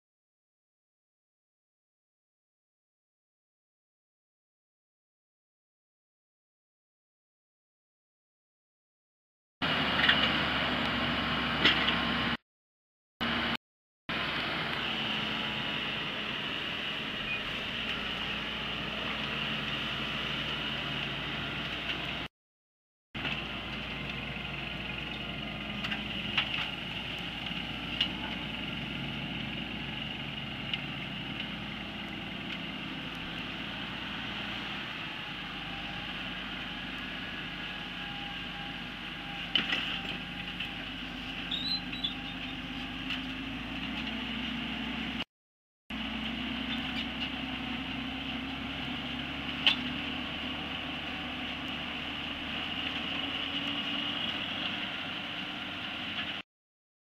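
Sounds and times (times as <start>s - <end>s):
tractor diesel engine running: 9.6s - 12.4s, 13.2s - 22.3s, 23.2s - 45.2s, 45.9s - 56.4s.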